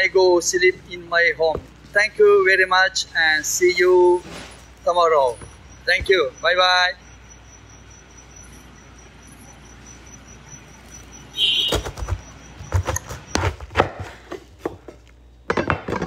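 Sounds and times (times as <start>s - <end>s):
faint high chirping: 3.0s - 13.0s.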